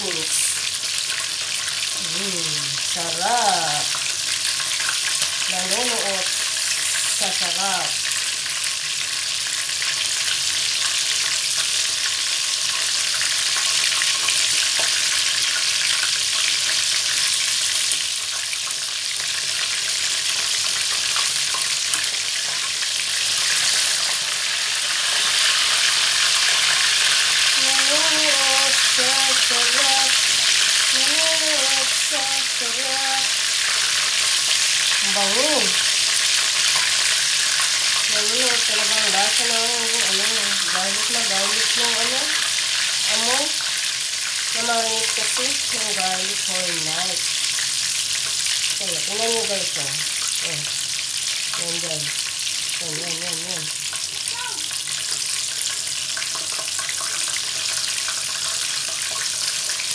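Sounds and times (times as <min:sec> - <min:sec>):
chicken sizzling in hot oil: 0:00.0 - 0:59.9
background voice: 0:30.9 - 0:33.3.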